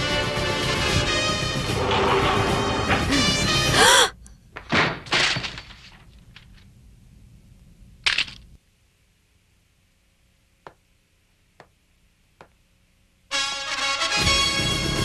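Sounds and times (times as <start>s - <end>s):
tense dramatic music: 0.0s - 4.0s.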